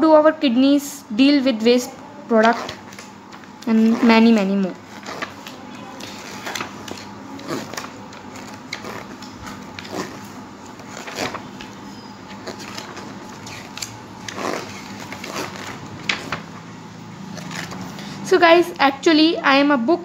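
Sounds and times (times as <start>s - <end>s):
pages turning: 2.4s - 16.6s, 17.3s - 18.2s.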